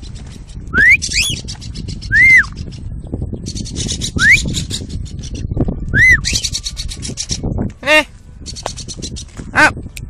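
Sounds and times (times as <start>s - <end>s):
wind rumble on microphone: 0.0s - 10.0s.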